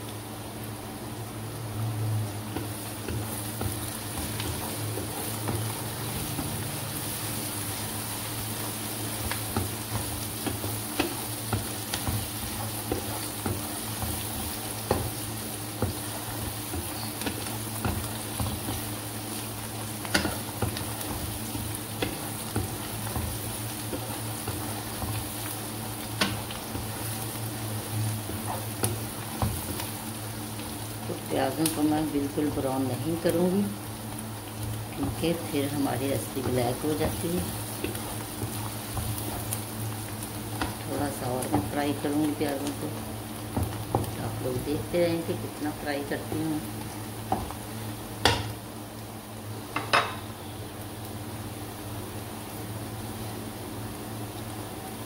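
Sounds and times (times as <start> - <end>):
onions sizzling in hot oil: 0.0 - 55.0.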